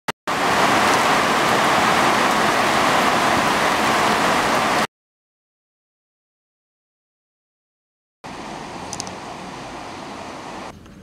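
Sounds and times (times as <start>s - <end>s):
heavy rain pouring: 0.3s - 4.9s, 8.2s - 10.7s.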